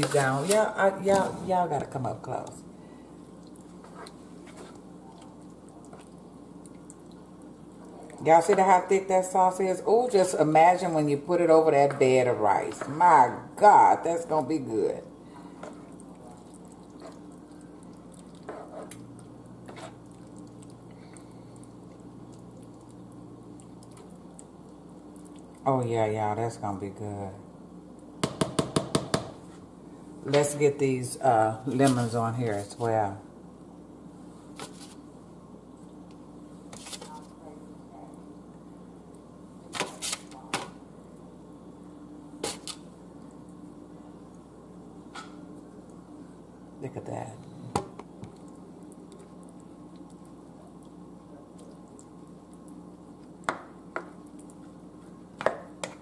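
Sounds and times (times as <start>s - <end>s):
steady low hum: 0.0s - 56.0s
spoon stirring thick sauce: 15.5s - 20.7s.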